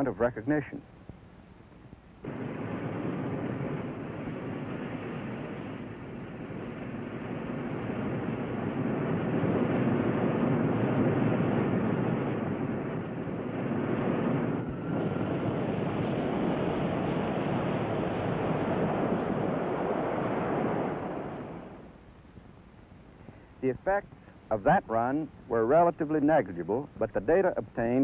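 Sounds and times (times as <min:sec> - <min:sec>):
rocket sled rushing roar: 0:02.3 - 0:21.9.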